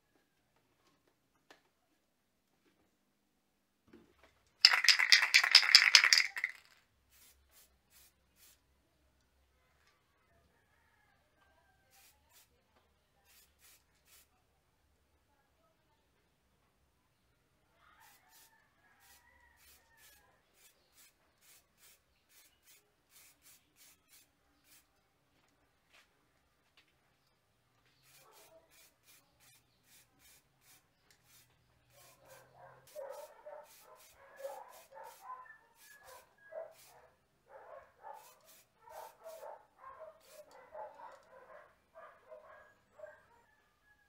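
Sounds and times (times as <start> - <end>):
spray can rattling: 4.6 - 8.6, 13.3 - 14.2, 20.6 - 24.8, 28.0 - 35.2, 35.8 - 36.9, 38.2 - 39.4, 40.2 - 40.6.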